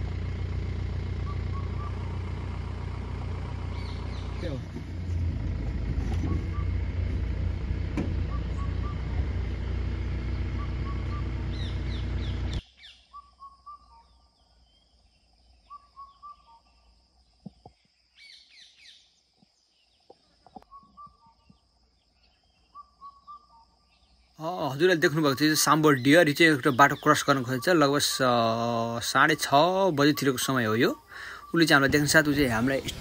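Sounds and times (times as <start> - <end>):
steady low rumble: 0.0 - 12.6, 31.8 - 33.0
high bird chirps: 1.2 - 2.3, 3.7 - 4.6, 6.2 - 7.0, 8.1 - 14.9, 15.5 - 19.1, 20.6 - 24.4
bird whistling phrase: 15.7 - 16.6.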